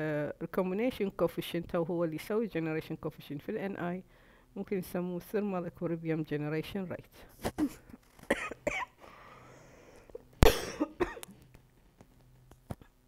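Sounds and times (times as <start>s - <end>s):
man coughing: 7.6s - 9.0s, 10.4s - 11.3s
man clearing throat: 10.4s - 11.3s.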